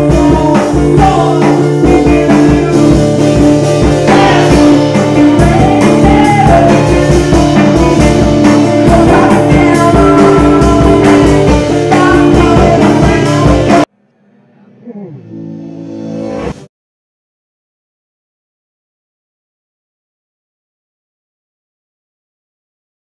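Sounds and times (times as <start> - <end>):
electric guitar: 0.0 - 13.9
electronic drum beat: 0.0 - 13.9.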